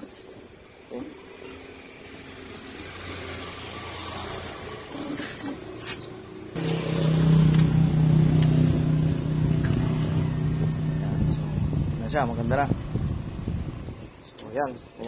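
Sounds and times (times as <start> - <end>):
engine starting and running: 6.6 - 11.8.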